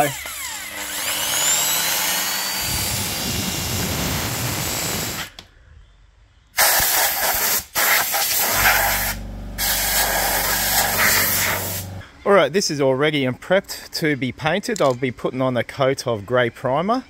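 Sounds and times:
cordless drill spinning in pipe: 0:00.0 - 0:05.4
compressed-air blow gun hissing: 0:02.6 - 0:05.4, 0:06.6 - 0:12.0
low steady hum: 0:08.5 - 0:12.1.

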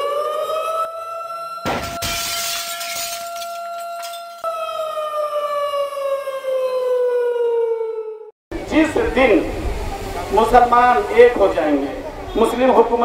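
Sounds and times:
siren wailing: 0:00.0 - 0:02.0, 0:03.0 - 0:08.3
glass shattering: 0:01.6 - 0:04.4.

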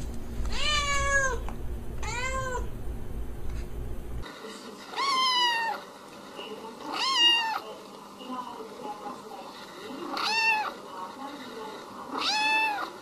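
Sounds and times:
kitten meowing high-pitched: 0:00.5 - 0:01.4, 0:02.0 - 0:02.6
cat meowing: 0:00.5 - 0:02.7, 0:05.0 - 0:05.8, 0:06.9 - 0:07.6, 0:10.1 - 0:10.8, 0:12.1 - 0:12.9.

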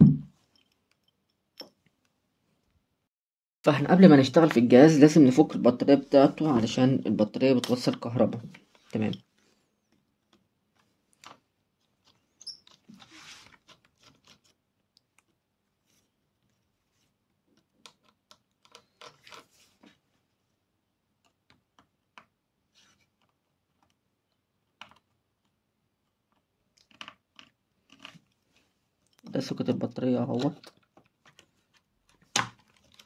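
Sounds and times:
small clicks and scrapes: 0:08.5 - 0:20.0, 0:21.2 - 0:29.2, 0:30.3 - 0:33.0.

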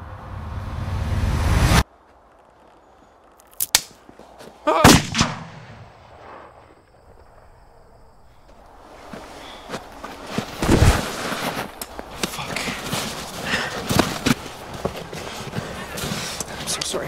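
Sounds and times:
rising rush of sound: 0:00.0 - 0:01.8
sharp gunshots: 0:04.8 - 0:06.3.

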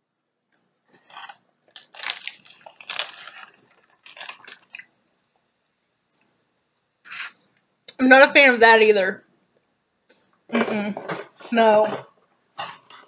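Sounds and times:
plastic wrapper crinkling: 0:01.0 - 0:04.9.

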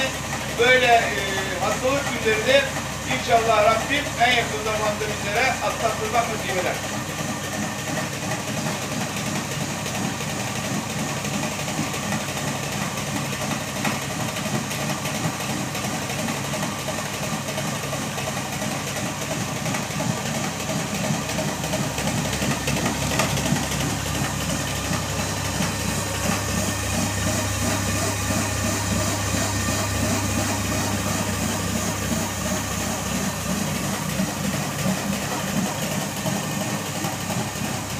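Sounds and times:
millstones grinding grain: 0:19.7 - 0:37.9
low pulsing: 0:21.9 - 0:34.8.

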